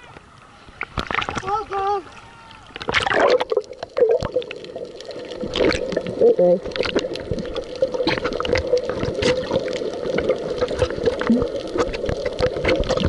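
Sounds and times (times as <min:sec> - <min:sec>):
small irregular clicks and crackles: 0:00.0 - 0:13.0
water gurgling underwater: 0:00.8 - 0:01.6, 0:02.6 - 0:13.0.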